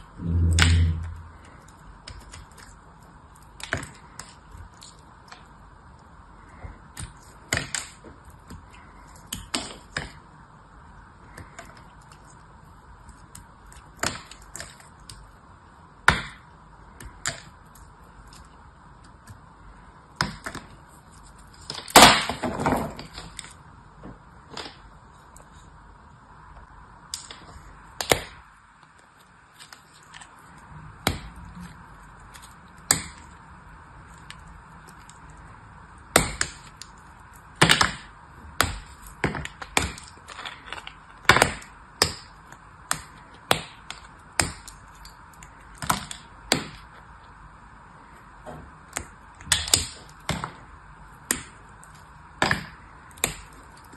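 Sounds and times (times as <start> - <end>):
dry soap snapping and crumbling: 0.9 - 5.5, 6.6 - 10.2, 13.0 - 15.3, 20.1 - 23.6, 36.0 - 47.0, 48.9 - 53.9.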